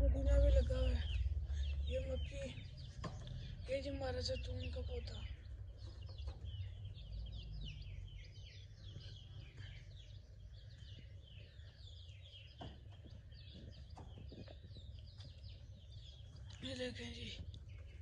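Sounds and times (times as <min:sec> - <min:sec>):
low rumble: 0:00.0 - 0:11.8
chicks peeping: 0:00.0 - 0:18.0.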